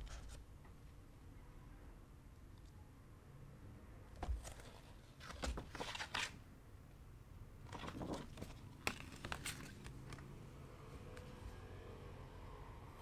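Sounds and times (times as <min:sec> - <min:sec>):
paper rustling and crinkling: 0:04.2 - 0:06.4, 0:07.6 - 0:10.3.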